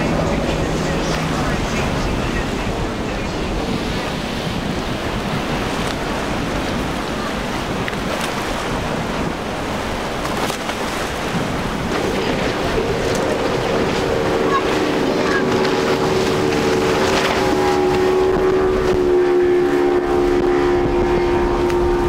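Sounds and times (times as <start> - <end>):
outboard engine drone: 0.0 - 22.0
rushing water and spray: 0.0 - 22.0
wind on microphone: 0.0 - 22.0.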